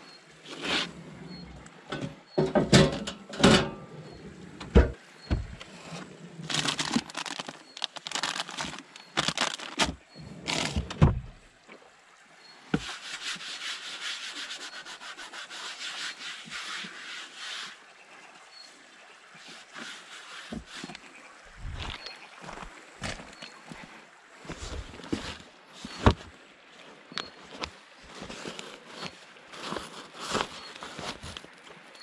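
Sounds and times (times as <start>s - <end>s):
object scraping across wood: 0.4s - 2.2s.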